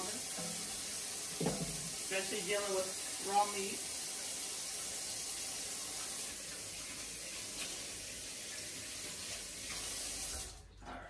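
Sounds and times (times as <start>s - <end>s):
tap water running into sink: 0.0s - 10.7s
hands washing: 3.8s - 10.9s.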